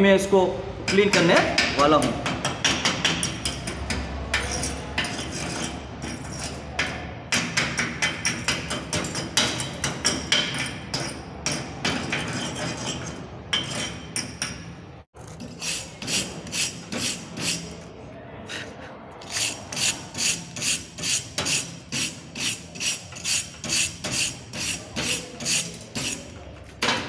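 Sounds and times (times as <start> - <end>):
wire brush scrubbing metal: 15.2 - 17.9, 19.2 - 26.4.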